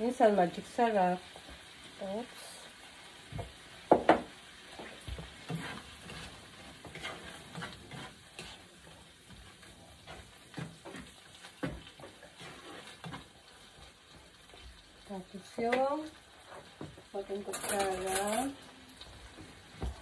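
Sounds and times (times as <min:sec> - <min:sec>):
food sizzling: 0:00.0 - 0:20.0
spoon scraping frying pan: 0:04.7 - 0:14.6, 0:16.4 - 0:18.6.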